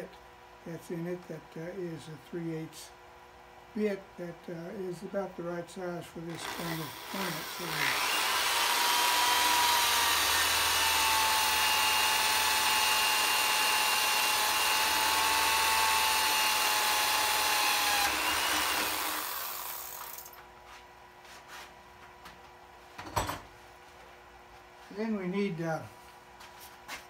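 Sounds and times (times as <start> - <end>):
electric drill whining: 6.3 - 20.4.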